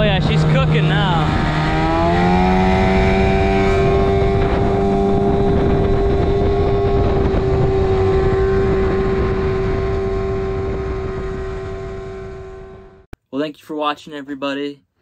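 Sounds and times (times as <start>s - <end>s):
outboard motor droning: 0.0s - 13.1s
wind: 0.0s - 13.1s.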